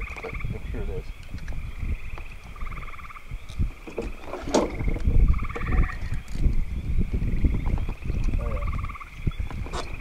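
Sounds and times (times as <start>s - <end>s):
frogs trilling: 0.0s - 10.0s
paddle boat thumping and sloshing: 3.8s - 6.0s.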